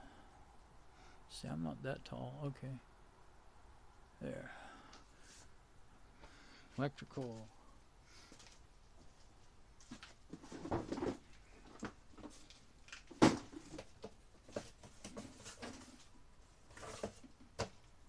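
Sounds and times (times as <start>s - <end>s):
cardboard boxes rustling: 9.8s - 17.8s.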